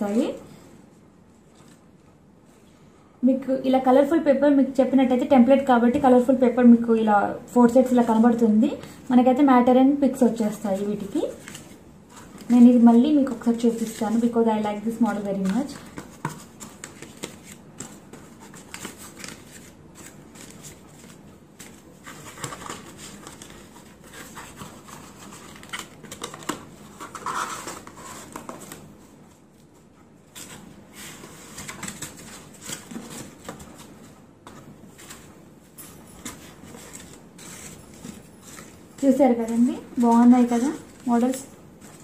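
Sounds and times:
paper and card rustling: 0:01.3 - 0:02.2, 0:10.1 - 0:42.0.

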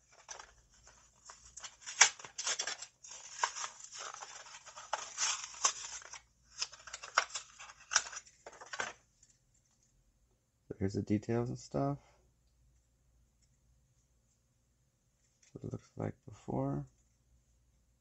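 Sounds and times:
cardboard ripping: 0:01.6 - 0:08.2.

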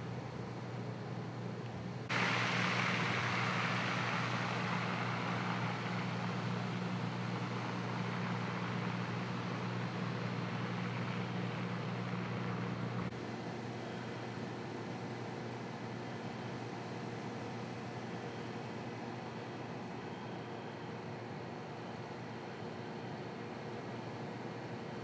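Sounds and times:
constant low hum: 0:00.0 - 0:25.0
smoke venting with rushing hiss: 0:02.1 - 0:13.1.

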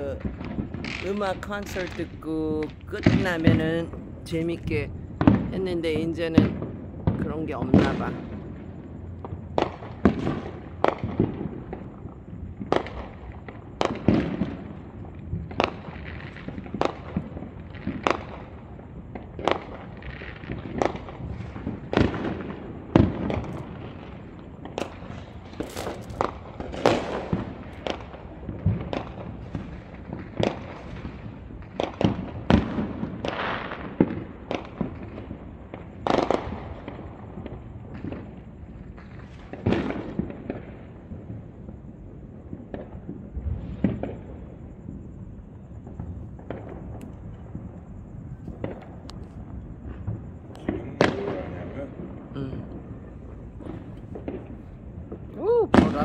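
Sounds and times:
fireworks bangs and pops: 0:00.0 - 0:56.0.

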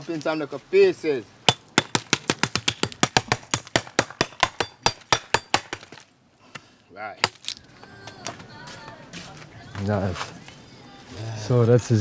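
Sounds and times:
machete chopping wood: 0:01.5 - 0:06.1, 0:07.2 - 0:07.6.

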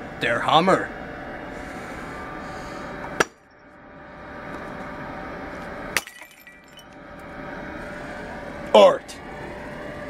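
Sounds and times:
hammer cracking ceramic: 0:06.0 - 0:06.6
ceramic shattering: 0:06.0 - 0:06.9.

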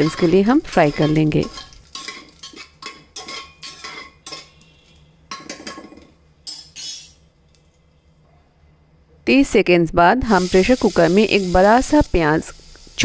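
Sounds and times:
metal spoon scraping pot: 0:00.0 - 0:07.2.

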